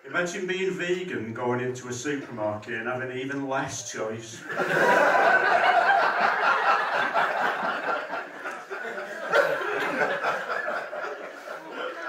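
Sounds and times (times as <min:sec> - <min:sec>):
audience laughing: 0:04.4 - 0:12.0.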